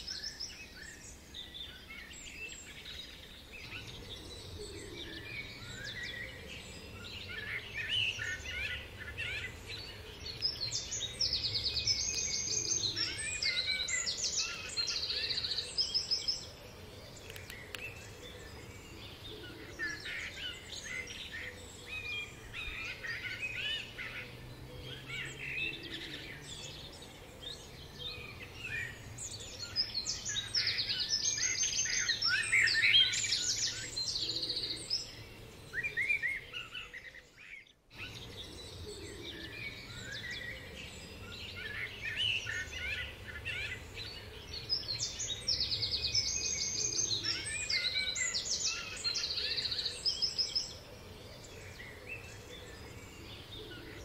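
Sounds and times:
songbirds chirping and trilling: 0.0 - 54.0.

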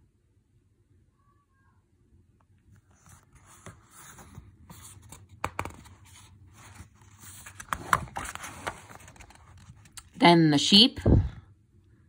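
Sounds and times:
book pages rustling: 2.6 - 10.2.

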